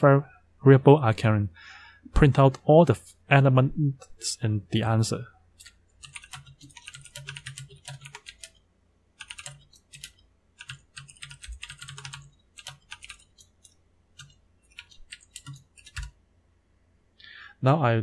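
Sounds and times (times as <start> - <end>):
computer keyboard typing: 5.6 - 8.6, 9.2 - 16.2.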